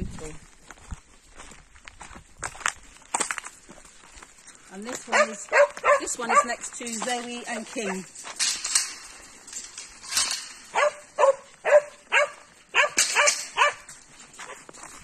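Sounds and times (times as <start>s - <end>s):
dog barking: 5.1s - 6.6s, 10.7s - 13.9s.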